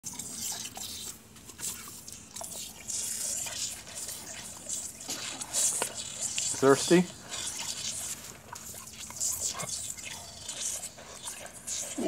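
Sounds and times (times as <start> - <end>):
dog lapping water: 0.0 - 12.0
hose water spraying and splashing: 1.6 - 10.0.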